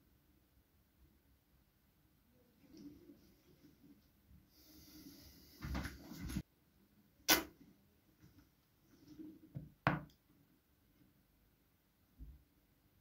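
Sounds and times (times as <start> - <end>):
sharp click: 7.3 - 7.5.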